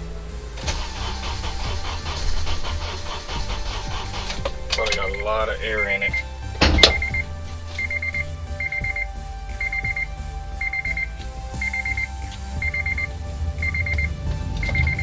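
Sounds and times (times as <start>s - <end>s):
low steady rumble: 0.0s - 15.0s
rapid high beeps: 3.4s - 15.0s.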